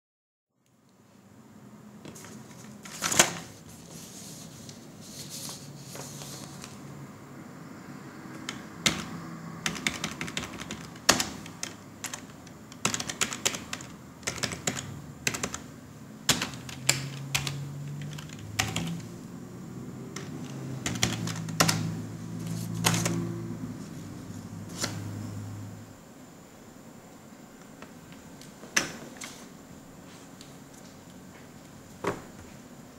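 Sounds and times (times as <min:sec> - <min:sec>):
computer keyboard typing: 0:08.3 - 0:15.7, 0:16.3 - 0:19.2, 0:20.1 - 0:22.0, 0:22.7 - 0:23.3.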